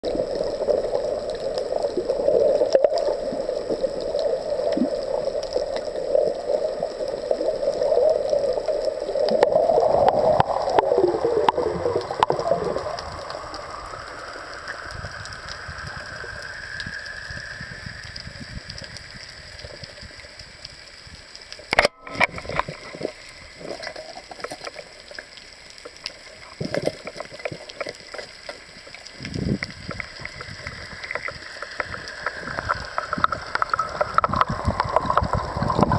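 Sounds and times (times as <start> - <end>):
underwater droning hum: 0.0 - 35.9
sharp loud click: 21.7 - 22.4.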